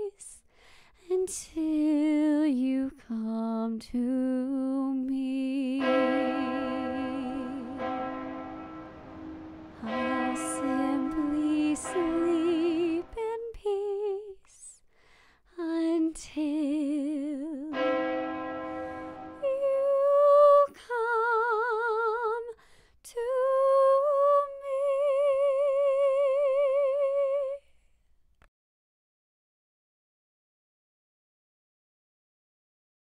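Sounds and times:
woman singing unaccompanied: 0.0 - 0.4, 1.0 - 7.8, 9.7 - 14.8, 15.5 - 17.8, 19.4 - 27.7.

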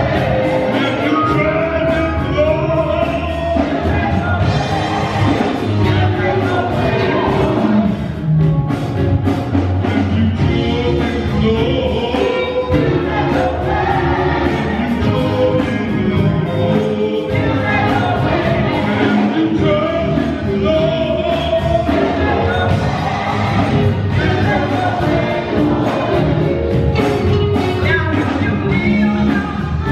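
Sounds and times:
man singing lead: 0.0 - 8.0, 9.8 - 29.9
gospel choir singing: 0.0 - 8.2, 9.8 - 29.9.

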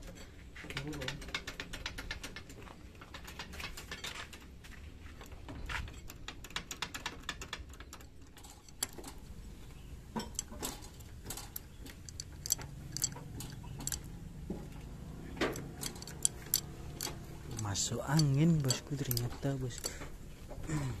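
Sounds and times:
hydraulic pump metallic clicks: 6.0 - 20.6.

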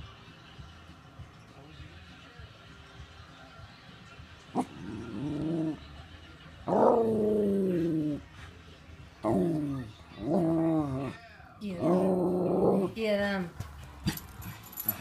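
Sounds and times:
dog growling and whining: 4.6 - 5.9, 6.7 - 8.3, 9.2 - 11.2, 11.8 - 13.0.

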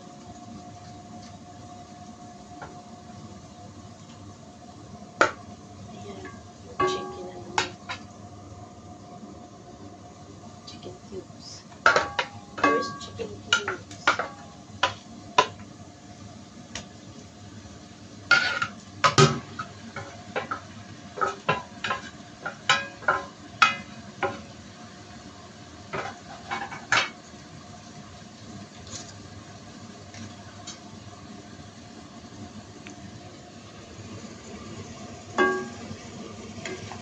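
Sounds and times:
chicken sizzling in pot: 0.0 - 37.0
metal plate and spoon clinking: 6.8 - 7.8, 11.9 - 15.5, 35.4 - 35.8.

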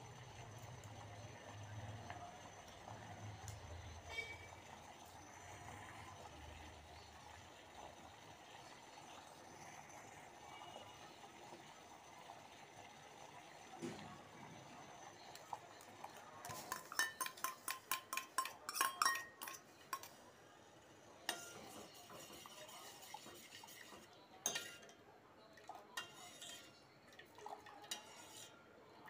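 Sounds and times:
spoon clinking against metal: 16.4 - 20.2, 21.3 - 23.6, 24.4 - 25.0, 25.9 - 26.8, 27.8 - 28.5.

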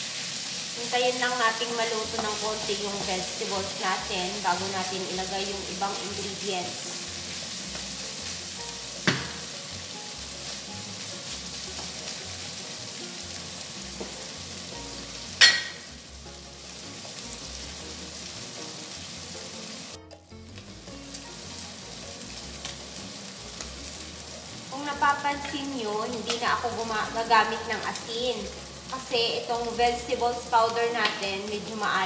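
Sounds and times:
food sizzling in frying pan: 0.0 - 32.0
wooden spatula knocking: 9.0 - 9.5.

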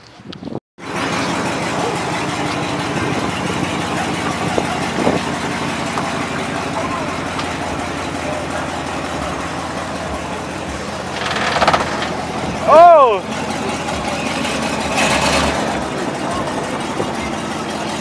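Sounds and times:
pickup engine idling: 0.8 - 18.0.

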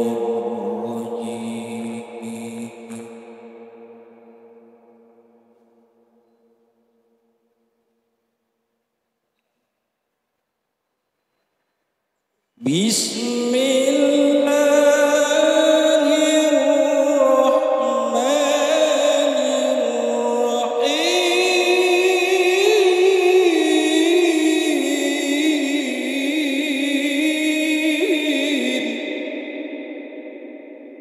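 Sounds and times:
man chanting melodically into microphone: 0.0 - 3.8, 12.6 - 30.2.

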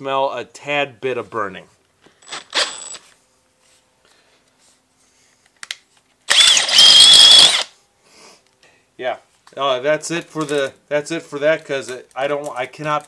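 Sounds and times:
hammer drill drilling into concrete: 6.3 - 7.7.

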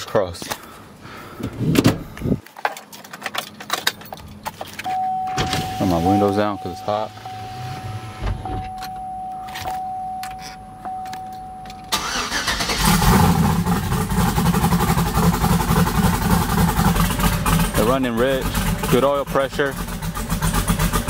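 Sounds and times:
steady high tone: 4.9 - 12.0
ignition key clicks: 8.4 - 12.8
engine cranking and idling: 11.7 - 21.0.

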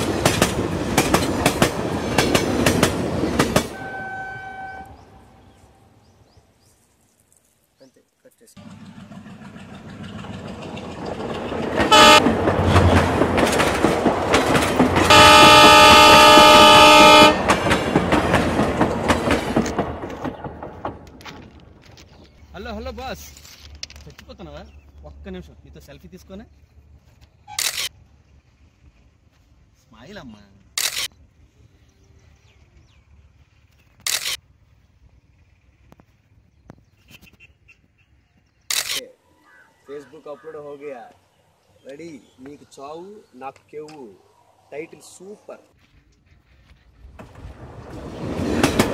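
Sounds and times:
train rumble and wheel clatter: 0.0 - 6.2, 8.6 - 31.1, 45.7 - 48.9
locomotive horn: 3.7 - 5.4, 11.8 - 12.4, 15.0 - 17.6
camera shutter click: 27.5 - 27.9, 30.8 - 31.1, 34.0 - 34.4, 38.7 - 39.0.

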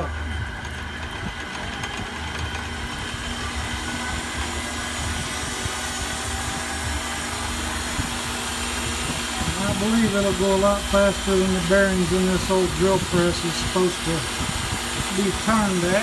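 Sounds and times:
drill press motor humming: 0.0 - 16.0.

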